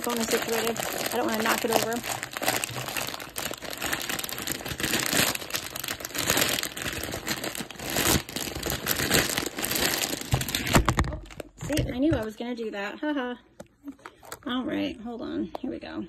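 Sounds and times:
grain kernels shifting and grinding: 0:00.0 - 0:10.8
plastic bag crinkling: 0:00.0 - 0:11.9.

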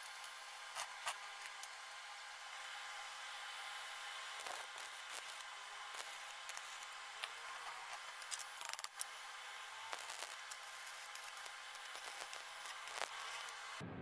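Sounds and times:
arc welding crackling hiss: 0:00.0 - 0:13.8.

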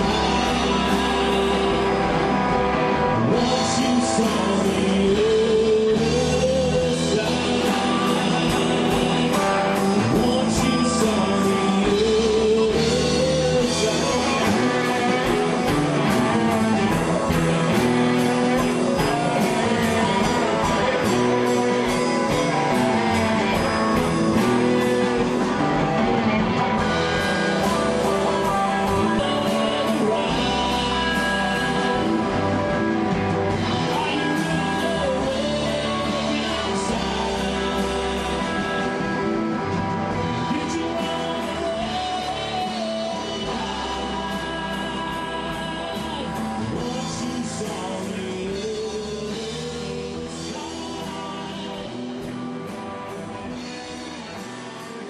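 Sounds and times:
electric guitar: 0:00.0 - 0:55.0
rock band playing: 0:00.0 - 0:55.0.

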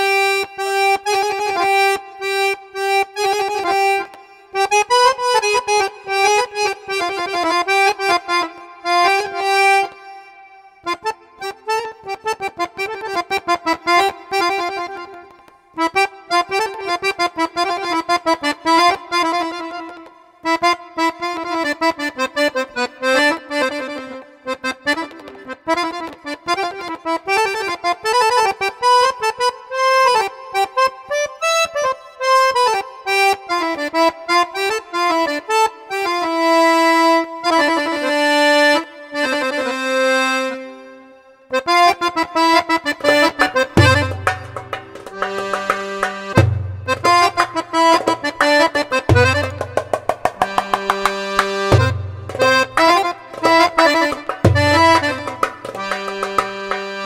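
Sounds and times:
accordion melody in detached notes: 0:00.0 - 0:57.0.

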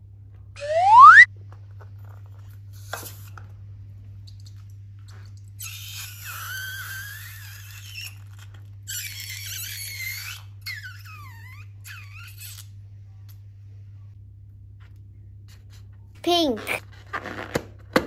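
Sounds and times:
rubber balloons squealing: 0:00.6 - 0:01.3, 0:05.6 - 0:12.6.

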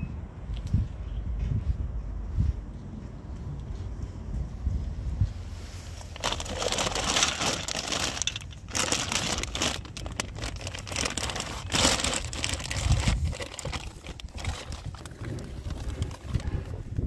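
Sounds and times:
plastic bag crinkling: 0:06.1 - 0:16.6.

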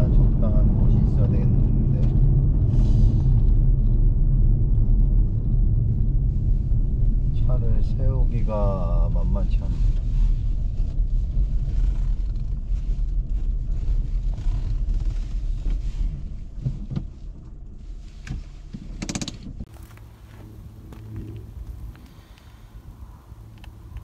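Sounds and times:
car driving on gravel: 0:00.0 - 0:24.0
knocks and rattle: 0:18.3 - 0:19.6.

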